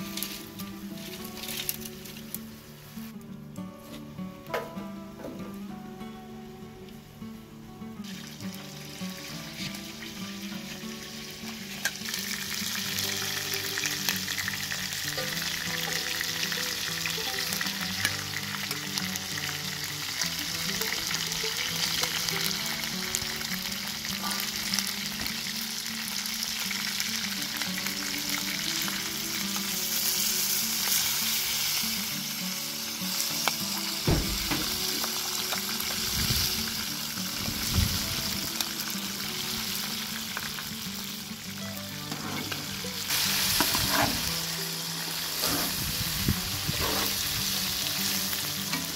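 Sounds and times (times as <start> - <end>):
chicken and onions sizzling in oil: 0.0 - 3.2, 7.8 - 48.9
metal spoon stirring and scraping: 43.6 - 44.2, 45.4 - 45.8.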